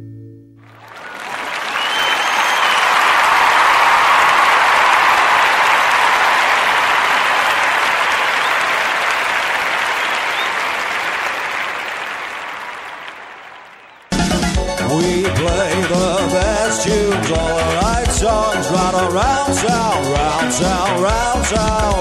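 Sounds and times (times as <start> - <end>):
audience applause: 0.6 - 14.4.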